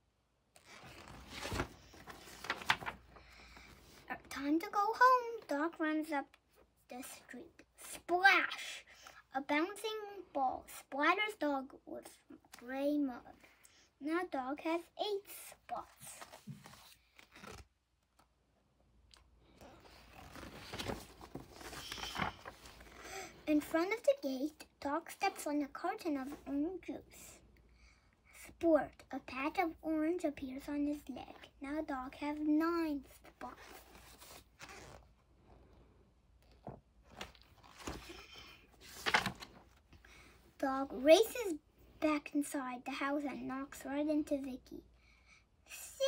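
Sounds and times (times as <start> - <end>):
paper pages rustling: 0.6 - 4.1, 15.8 - 17.7, 19.7 - 23.7, 33.3 - 35.1, 36.5 - 39.9
paper rustles and taps: 0.8 - 3.0, 38.8 - 39.6.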